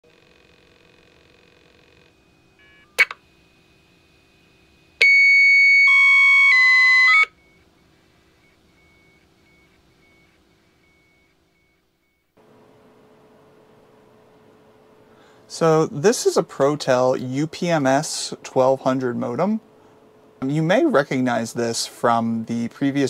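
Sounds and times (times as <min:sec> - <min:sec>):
dial-up modem tones: 0:06.8 - 0:12.3
faint broken beeping: 0:06.8 - 0:12.4.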